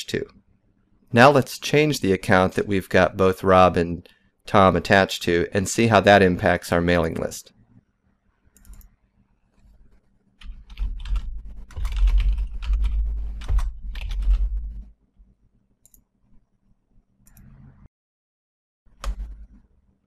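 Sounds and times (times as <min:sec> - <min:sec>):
typing on computer keyboard: 0:10.4 - 0:14.8.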